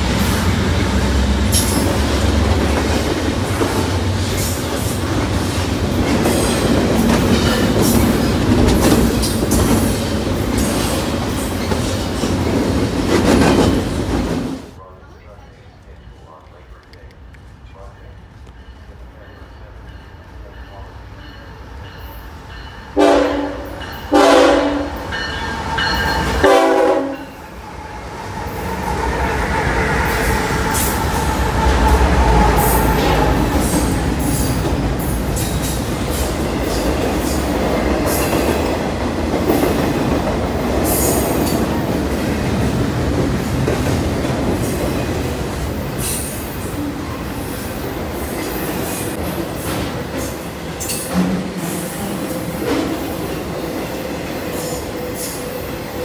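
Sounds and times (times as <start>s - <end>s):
freight train rumbling past: 0.0s - 56.0s
locomotive air horn blasts: 23.0s - 25.0s, 26.4s - 27.4s.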